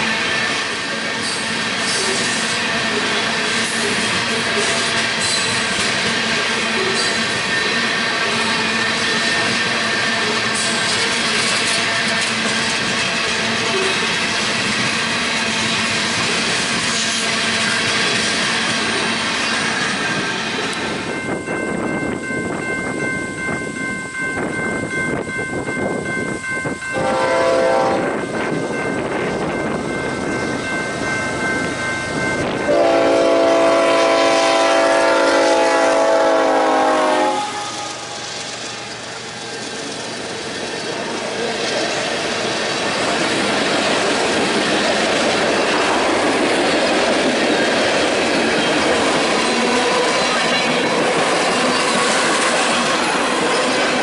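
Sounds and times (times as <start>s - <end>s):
freight train wheels rumbling on rail: 0.0s - 54.0s
train air horn blasts: 26.9s - 28.2s, 32.7s - 38.2s.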